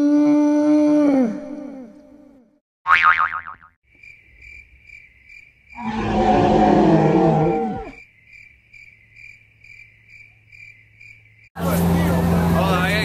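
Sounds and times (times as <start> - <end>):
crickets chirping: 3.9 - 11.6
loud drawn-out roar: 5.8 - 8.0.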